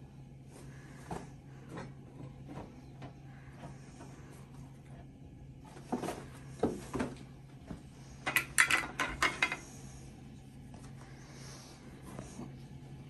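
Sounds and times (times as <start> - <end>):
plastic measuring cups clattering: 8.3 - 9.6.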